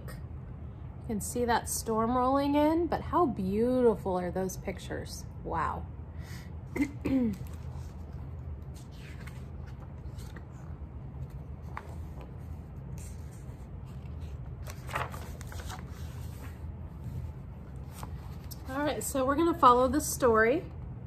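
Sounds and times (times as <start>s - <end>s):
low room hum: 0.0s - 21.0s
book pages rustling: 7.3s - 18.7s.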